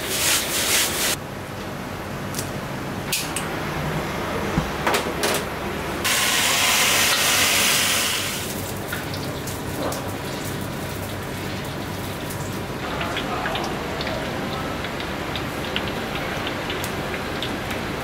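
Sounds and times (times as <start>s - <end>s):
sauce sizzling in hot bowl: 6.1s - 14.0s.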